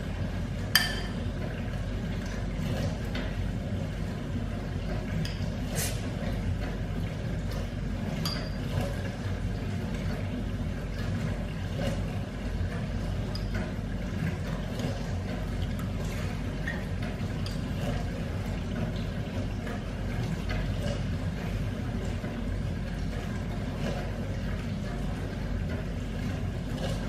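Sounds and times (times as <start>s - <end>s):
spoon clinking on ceramic bowl: 0.8s - 1.2s, 8.2s - 8.6s.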